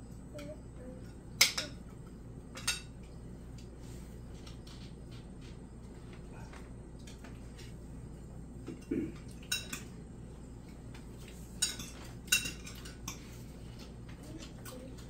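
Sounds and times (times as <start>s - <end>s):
steady low hum: 0.0s - 15.0s
metal kitchenware clinking: 9.4s - 9.9s, 11.6s - 13.2s.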